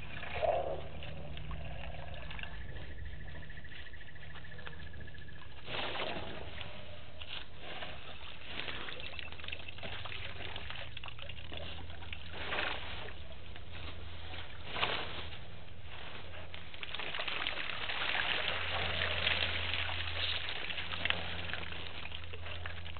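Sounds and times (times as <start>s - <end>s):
water sloshing and splashing: 0.0s - 22.9s.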